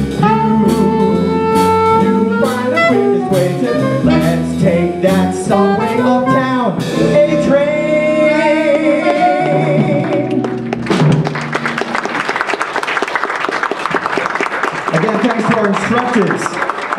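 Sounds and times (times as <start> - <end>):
man singing with vibrato: 0.0 - 10.5
jazz band playing: 0.0 - 14.2
audience applause: 10.0 - 16.9.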